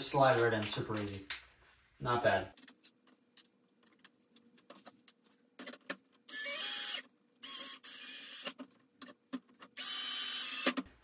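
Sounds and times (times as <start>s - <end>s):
cordless drill whirring: 6.3s - 8.6s, 9.8s - 10.9s.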